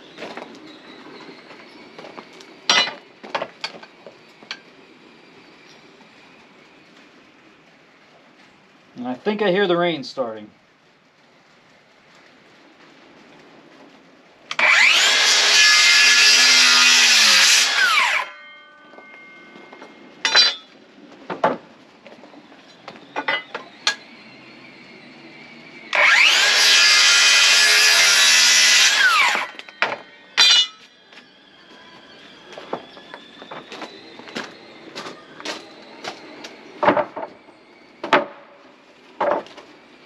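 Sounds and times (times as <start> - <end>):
electric power saw cutting lumber: 14.5 - 18.4, 23.3 - 31.3.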